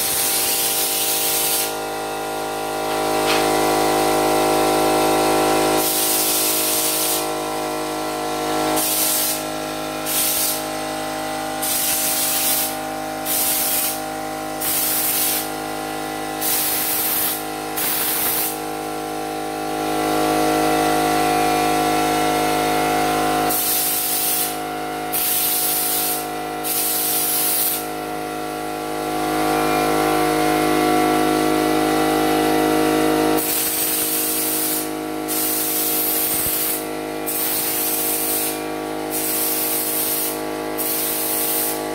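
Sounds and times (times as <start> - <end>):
spray gun hissing: 0.0 - 1.8, 5.8 - 7.3, 8.8 - 9.4, 10.0 - 10.6, 11.6 - 14.0, 14.6 - 15.5, 16.4 - 18.6, 23.5 - 27.9, 33.4 - 41.8
air compressor running: 0.0 - 41.9.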